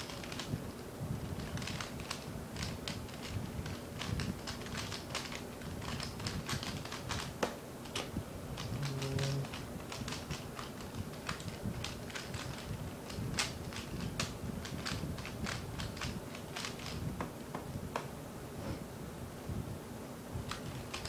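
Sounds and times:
puzzle cube clicking and clacking: 1.4 - 17.0, 20.5 - 21.0.

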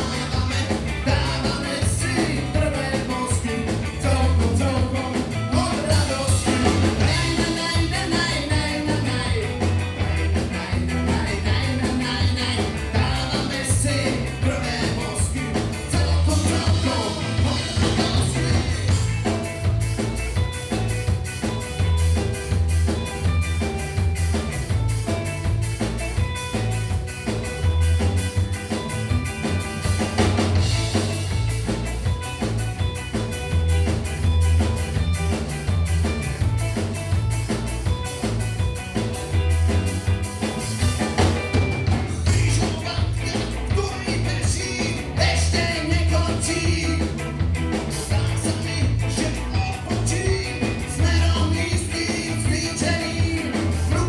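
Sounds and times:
person singing: 0.0 - 19.0, 42.2 - 47.2, 48.0 - 54.0
bass guitar: 0.0 - 54.0
drum kit beat: 0.0 - 54.0
electric guitars: 0.0 - 54.0.

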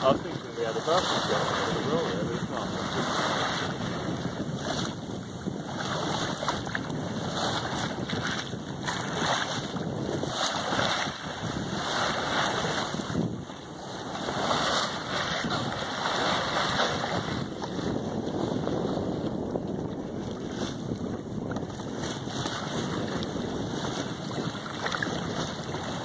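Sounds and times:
sea water sloshing along hull: 0.0 - 26.0
wind buffeting microphone: 0.0 - 26.0.

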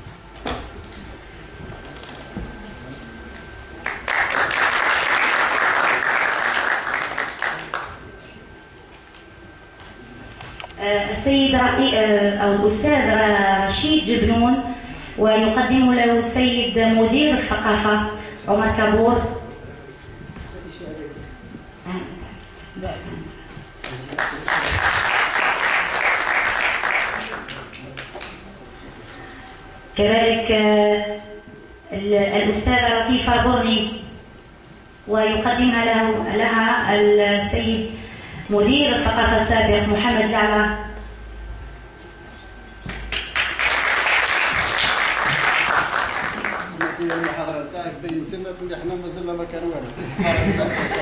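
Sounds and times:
audience applauding: 3.8 - 8.0, 23.9 - 28.3, 43.1 - 47.5.

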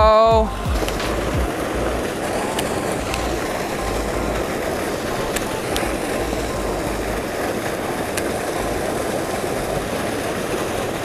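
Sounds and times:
wind buffeting microphone: 0.0 - 11.0
water gushing into a pool: 0.5 - 11.0.

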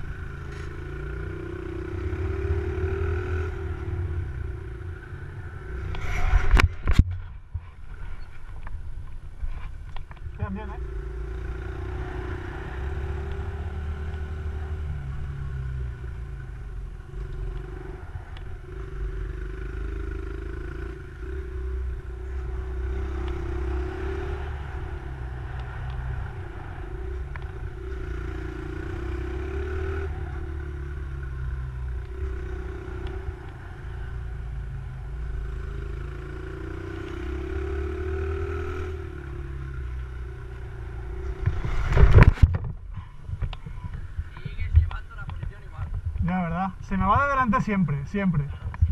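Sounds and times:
steady low rumble: 40.6 - 48.9.

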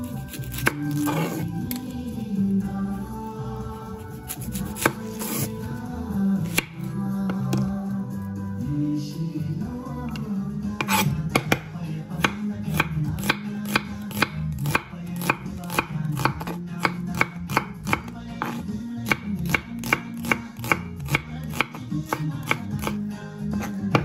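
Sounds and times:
soft background music: 0.0 - 24.0
knife chopping on cutting board: 0.3 - 1.8, 4.3 - 5.5, 6.5 - 6.7, 10.8 - 23.0, 23.6 - 24.0.

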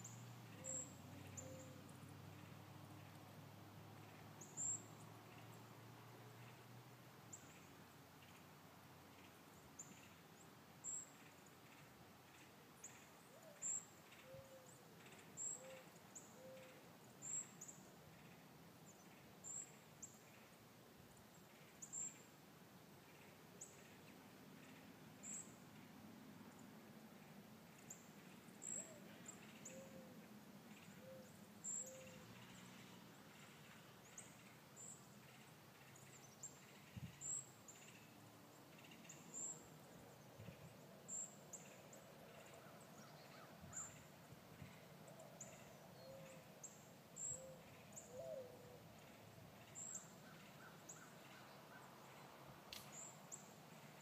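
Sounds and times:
soft low bird calls: 0.0 - 3.1, 10.9 - 20.6, 27.2 - 54.0
faint birdsong high chirp: 0.0 - 54.0.

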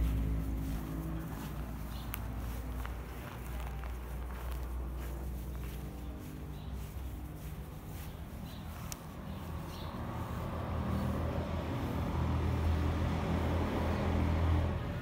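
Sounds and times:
vehicle engine rumble passing: 0.0 - 15.0.

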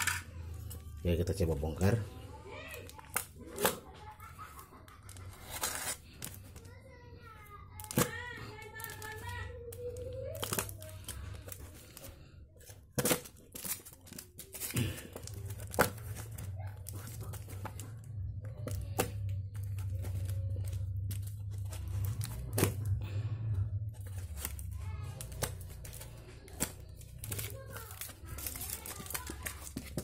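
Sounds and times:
packing tape and wrapping tearing: 2.6 - 6.8, 7.8 - 23.2, 23.8 - 30.0
steady low hum: 14.8 - 28.3.

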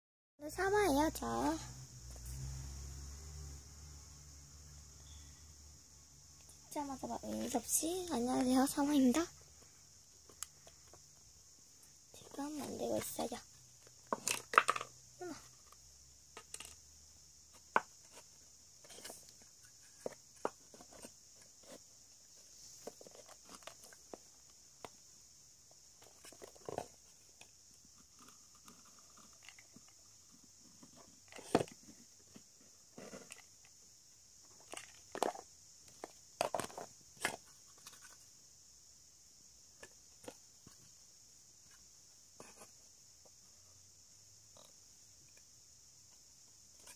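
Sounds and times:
faint high hiss: 0.4 - 46.9
wooden boxes tapping and clicking: 14.0 - 14.9.

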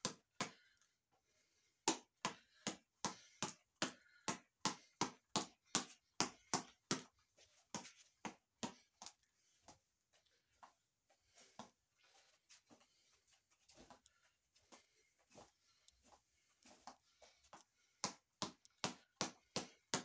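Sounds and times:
reflex ball being punched: 0.0 - 0.6, 1.8 - 7.1, 18.0 - 20.0.

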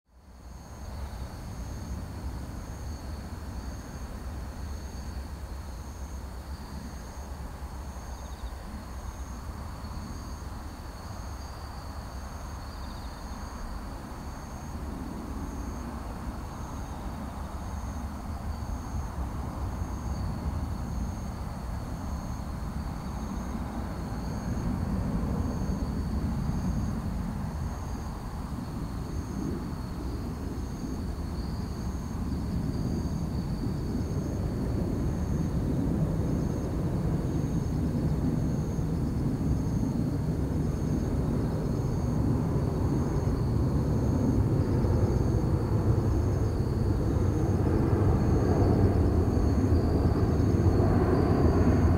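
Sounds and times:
insects chirping: 0.2 - 51.9
jet engines rumbling: 13.9 - 51.9.

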